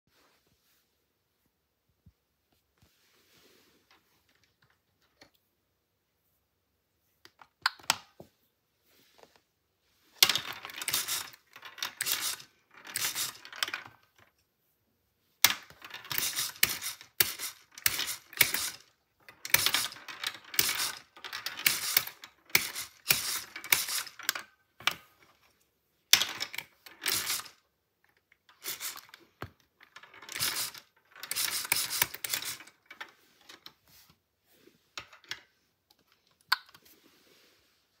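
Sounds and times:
ball rattling across plastic: 10.2s - 14.4s, 15.4s - 33.9s.

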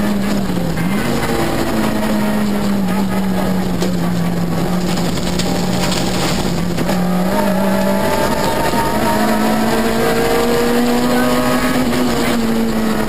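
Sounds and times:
car engine running hard: 0.0s - 13.0s.

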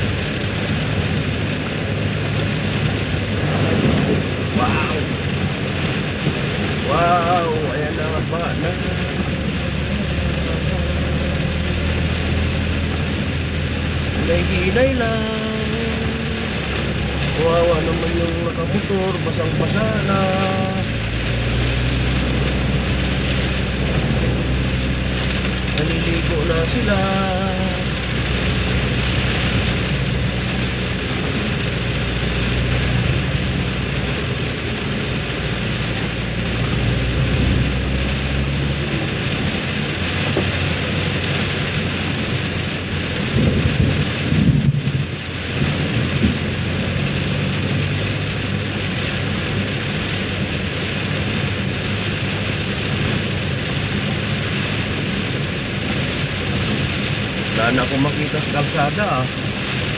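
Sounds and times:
heavy rain on a car: 0.0s - 59.9s
low rumble: 0.0s - 59.9s.

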